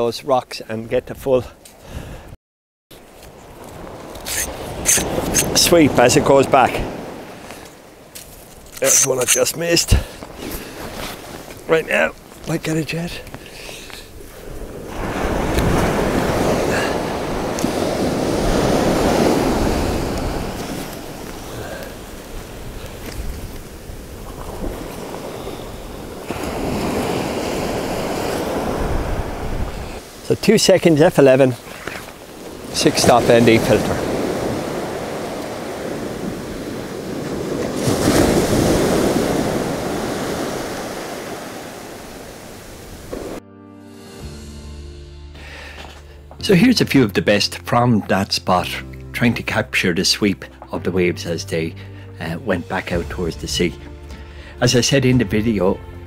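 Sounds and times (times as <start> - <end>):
sea waves washing on sand: 3.3 - 43.4.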